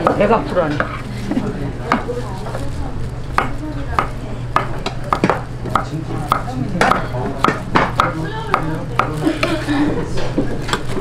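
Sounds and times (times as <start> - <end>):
knife chopping on wooden board: 3.4 - 9.6.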